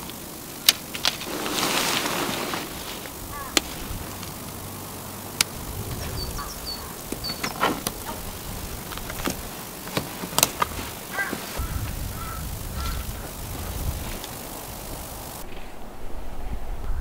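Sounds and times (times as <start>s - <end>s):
tent clips and poles clicking: 0.0s - 11.6s
tent fabric rustling: 0.0s - 15.7s.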